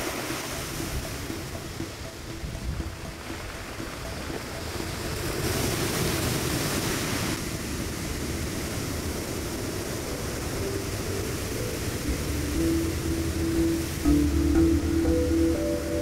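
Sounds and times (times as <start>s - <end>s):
sea surf washing over stones: 3.0s - 14.1s.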